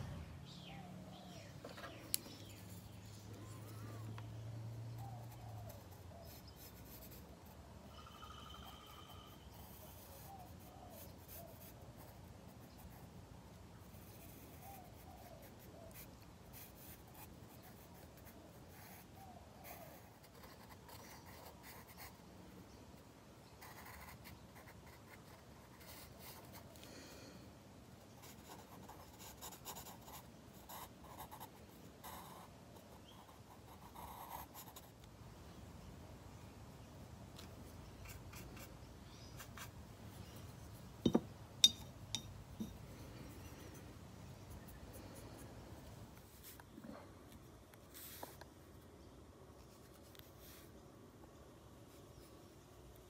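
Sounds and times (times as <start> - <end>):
pencil scratching on paper: 4.8 - 7.6, 8.2 - 13.1, 13.9 - 22.2, 23.6 - 26.6, 28.2 - 35.0.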